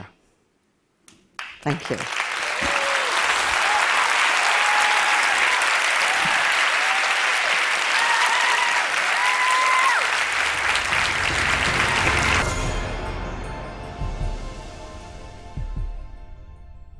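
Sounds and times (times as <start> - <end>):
audience applauding: 1.4 - 12.6
low background music: 10.4 - 16.9.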